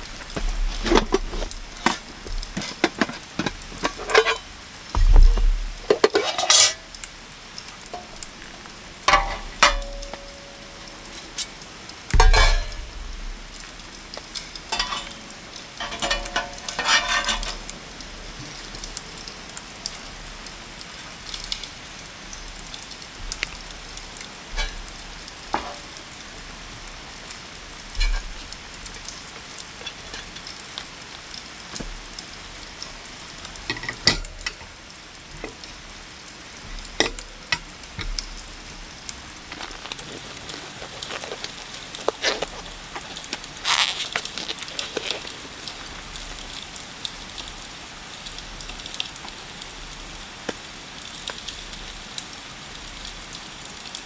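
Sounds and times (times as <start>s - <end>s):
rain hissing: 0.0s - 54.0s
metal trays clanking: 0.7s - 4.4s, 9.1s - 10.3s, 12.2s - 13.0s, 14.7s - 17.6s.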